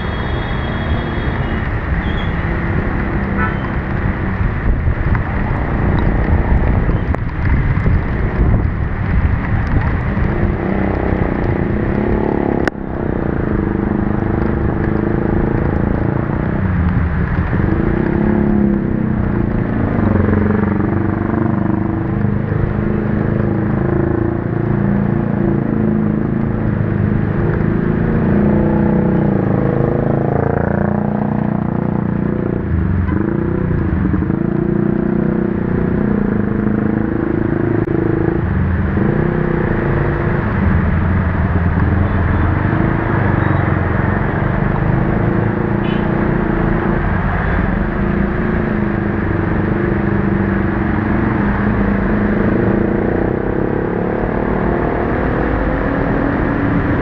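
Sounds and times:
rain: 0.0 - 45.4
wind: 0.0 - 57.0.

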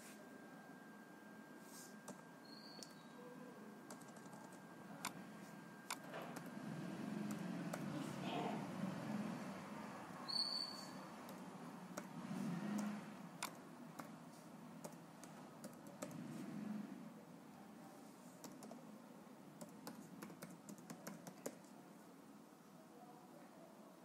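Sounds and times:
keyboard typing: 2.0 - 2.2, 3.9 - 5.2, 5.9 - 8.2, 11.1 - 14.2, 14.8 - 16.4, 18.4 - 18.8, 19.6 - 21.8.

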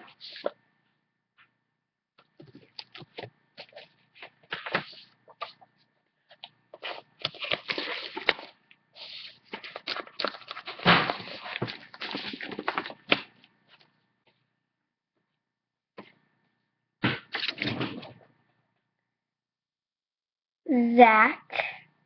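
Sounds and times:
rustling handling noise: 2.2 - 14.4.

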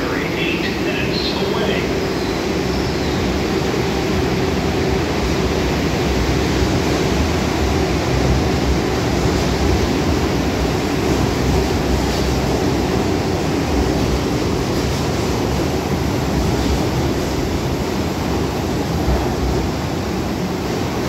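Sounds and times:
subway trains rumbling: 0.0 - 21.0.

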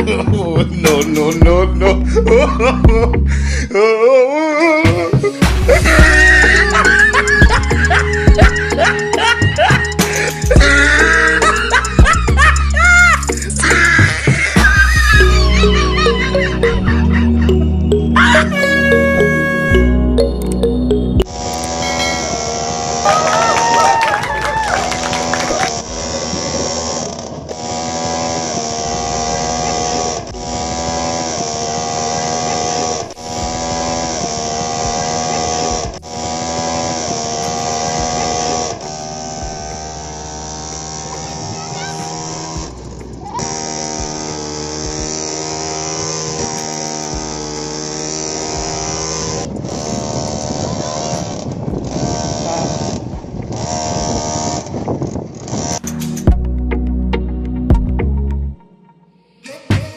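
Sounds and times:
song with sung vocals: 59.3 - 59.9.

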